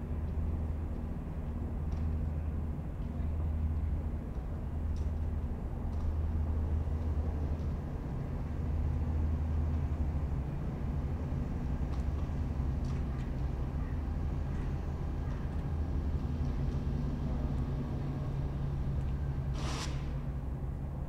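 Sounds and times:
radial aircraft engine idling: 0.1s - 21.0s.

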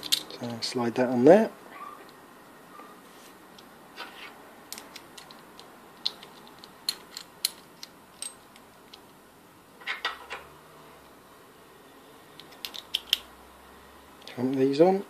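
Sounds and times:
small metal parts clicking: 0.0s - 0.6s, 4.7s - 9.2s, 12.4s - 13.3s.

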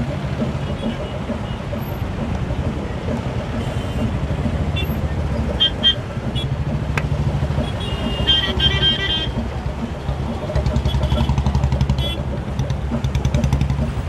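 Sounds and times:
engine noise: 0.0s - 14.0s
vehicle horn honking: 7.6s - 9.4s, 12.0s - 12.2s.

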